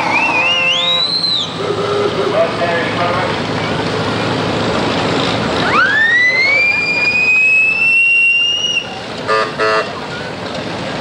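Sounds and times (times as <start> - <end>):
high whistle-like tone rising: 0.0 - 1.6, 5.6 - 9.0
steady background noise: 0.0 - 11.0.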